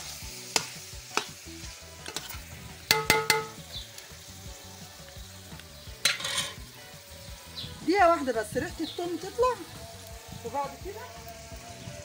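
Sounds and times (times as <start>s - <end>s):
food sizzling in a pot: 0.0s - 12.0s
metal spoon scraping a pot: 2.0s - 3.5s, 6.0s - 6.6s
ringing metal knocks: 2.9s - 3.6s.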